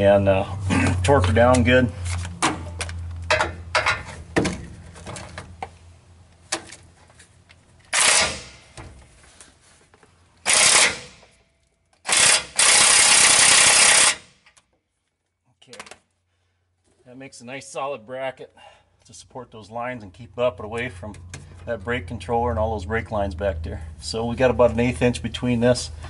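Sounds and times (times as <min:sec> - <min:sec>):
impact wrench hammering bolt: 0:07.9 - 0:08.9, 0:10.4 - 0:11.4, 0:12.0 - 0:14.6.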